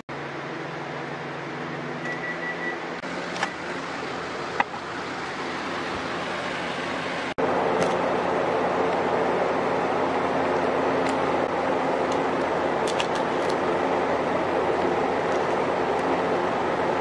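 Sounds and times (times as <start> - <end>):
microwave oven humming: 0.1 - 17.0
steady background noise: 0.1 - 17.0
microwave high-pitched beep: 1.6 - 3.0.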